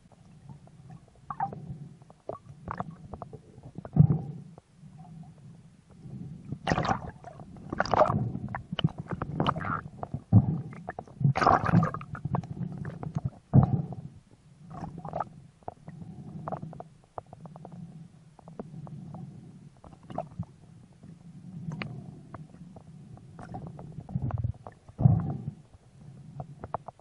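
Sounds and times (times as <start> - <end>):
muffled underwater rumbling: 0.0 - 27.0
gurgling bursts: 6.7 - 7.1.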